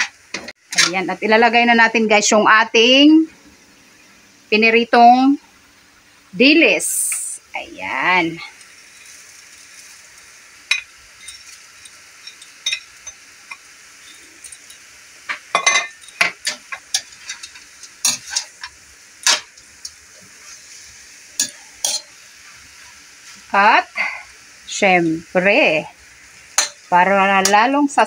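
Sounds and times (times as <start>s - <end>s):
faint sizzle: 0.0s - 28.0s
metal tongs clinking on a wok: 10.7s - 20.0s, 21.4s - 22.2s, 26.5s - 27.7s.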